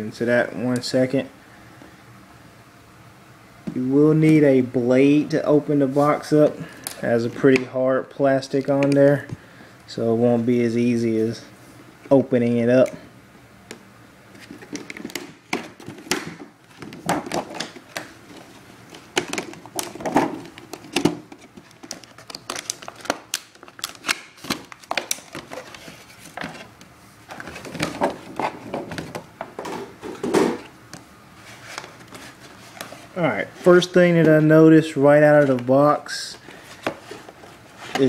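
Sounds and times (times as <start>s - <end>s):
plastic packaging crackling: 14.3s - 26.7s.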